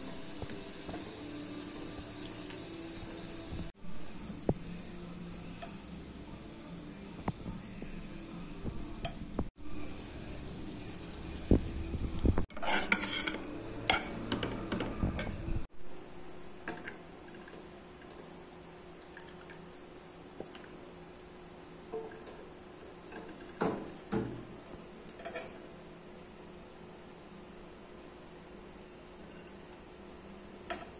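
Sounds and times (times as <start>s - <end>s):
light sizzle: 0.0s - 14.4s
metal utensils scraping pots: 12.5s - 15.3s.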